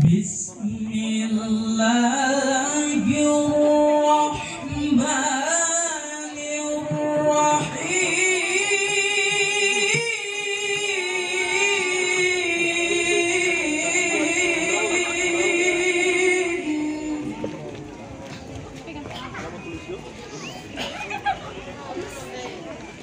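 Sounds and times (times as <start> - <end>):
man reciting melodically: 0.0 - 17.4.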